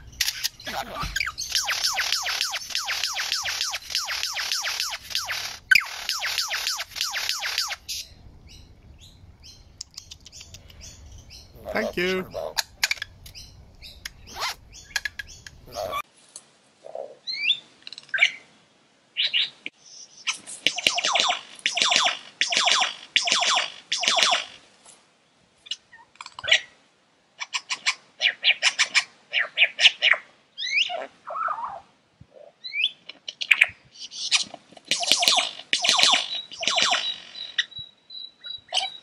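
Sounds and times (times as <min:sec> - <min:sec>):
lyrebird rattling clicky song: 0:00.0 - 0:08.2, 0:09.5 - 0:15.9, 0:20.6 - 0:24.6, 0:33.3 - 0:37.8.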